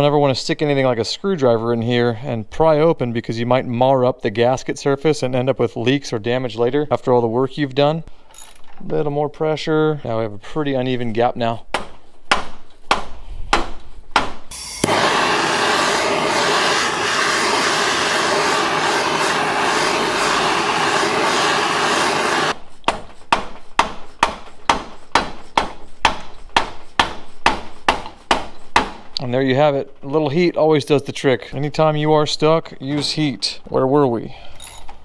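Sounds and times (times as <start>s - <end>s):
propane torch hissing: 14.5s - 22.6s.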